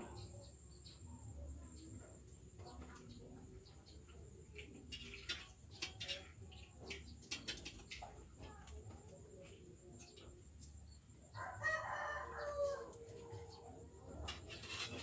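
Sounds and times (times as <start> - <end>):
rooster crowing: 11.3 - 13.4.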